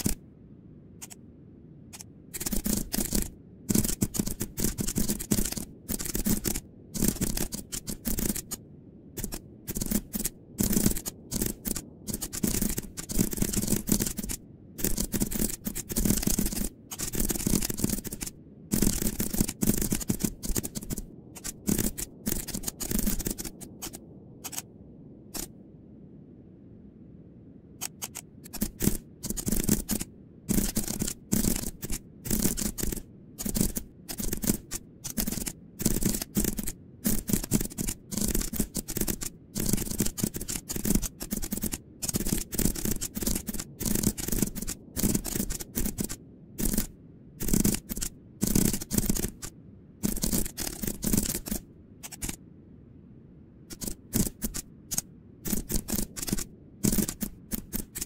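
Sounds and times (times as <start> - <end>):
keyboard typing: 0.0 - 0.2, 1.9 - 8.6, 9.2 - 24.7, 27.8 - 52.4, 53.7 - 58.0.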